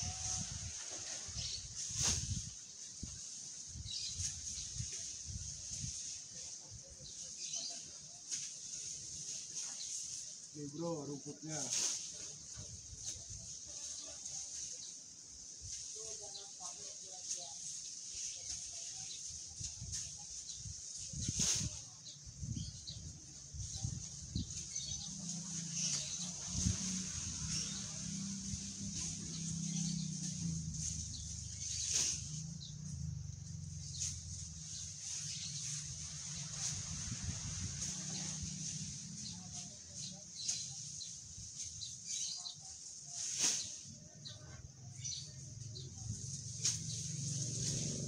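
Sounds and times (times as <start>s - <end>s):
faint birds chirping: 0.0s - 48.0s
grass leaves rustling: 0.0s - 48.0s.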